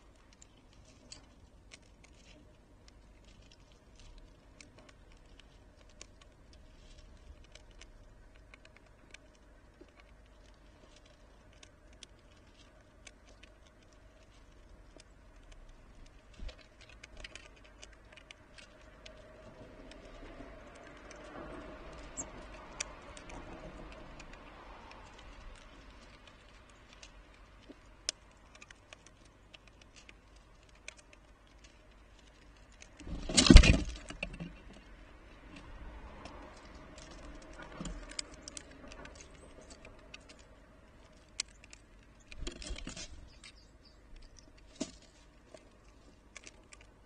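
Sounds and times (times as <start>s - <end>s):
squirrel cracking seeds clicks: 0.0s - 47.0s
squirrel rustling on feeder: 0.0s - 47.0s.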